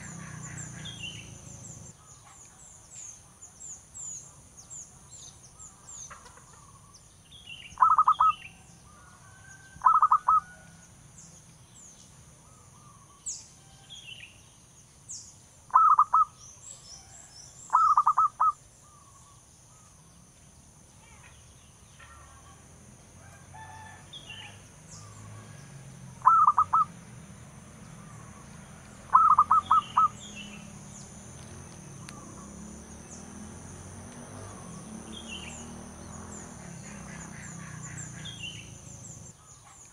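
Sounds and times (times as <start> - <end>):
dove cooing: 7.8 - 8.3, 9.8 - 10.5, 15.7 - 16.3, 17.7 - 18.6, 26.2 - 26.9, 29.1 - 30.2.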